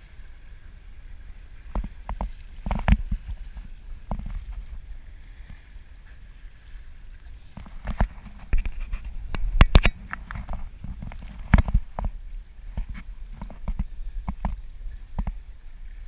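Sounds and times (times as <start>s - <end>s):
water rushing past boat bow: 0.0s - 16.0s
knocks and splashes: 1.6s - 5.7s, 7.5s - 15.4s.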